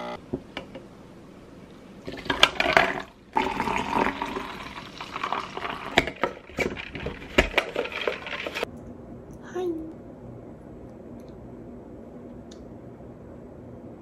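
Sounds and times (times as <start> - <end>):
coffee pouring over ice: 2.1 - 8.7
ice clicking and crackling: 3.6 - 8.7.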